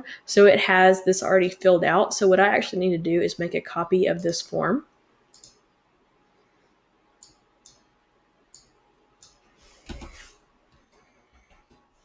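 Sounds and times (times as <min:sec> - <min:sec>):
computer mouse clicking: 0:05.3 - 0:05.6, 0:07.2 - 0:07.9, 0:08.5 - 0:09.4.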